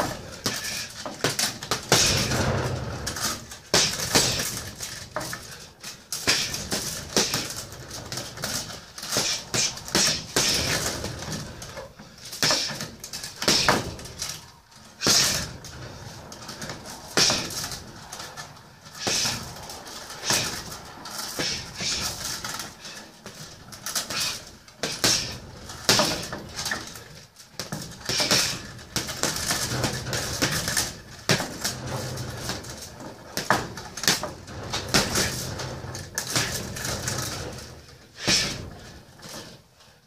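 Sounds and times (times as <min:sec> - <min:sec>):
punches thudding on heavy bag: 0:00.0 - 0:05.4, 0:06.2 - 0:11.7, 0:12.4 - 0:14.2, 0:15.0 - 0:15.6, 0:16.4 - 0:17.9, 0:19.0 - 0:19.5, 0:24.0 - 0:26.9, 0:27.6 - 0:31.6, 0:38.2 - 0:38.8.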